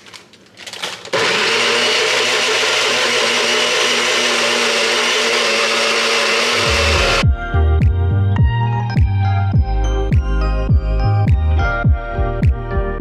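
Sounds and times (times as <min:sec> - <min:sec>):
electric blender running: 0:01.1 - 0:07.2.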